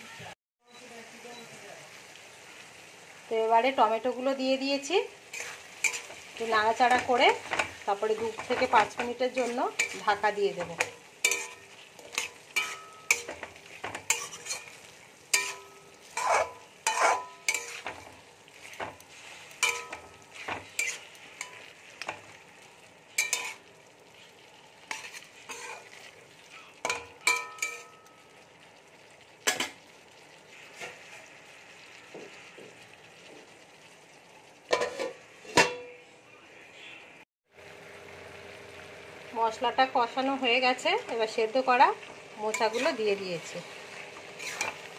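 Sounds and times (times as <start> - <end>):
faint steady sizzle: 0.0 - 44.9
spatula scraping metal pan: 5.3 - 22.3, 23.1 - 26.1, 42.5 - 43.2, 44.2 - 44.9
metal lid clanking on pan: 10.6 - 14.7, 15.3 - 18.1, 19.6 - 22.2, 26.8 - 28.1, 34.7 - 36.0.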